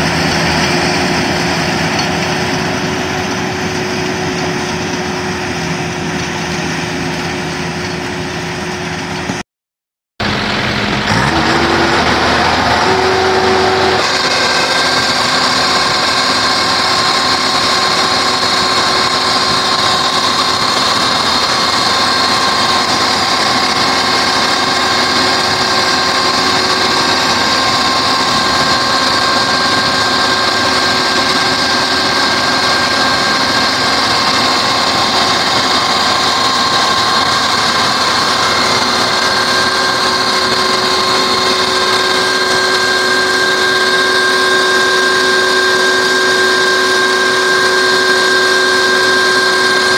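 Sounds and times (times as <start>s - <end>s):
combine harvester drone: 0.0s - 9.4s, 10.2s - 49.9s
machine whining tones: 10.2s - 49.9s.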